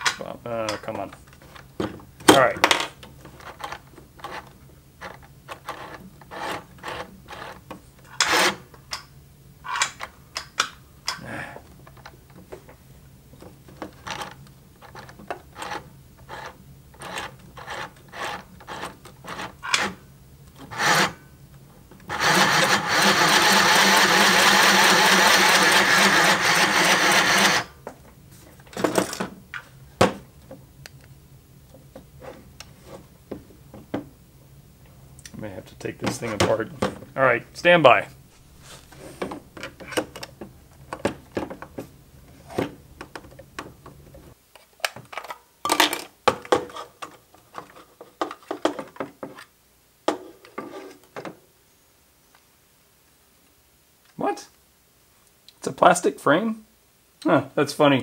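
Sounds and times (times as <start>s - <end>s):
small electric motor running: 20.7s - 21.2s, 22.1s - 27.8s.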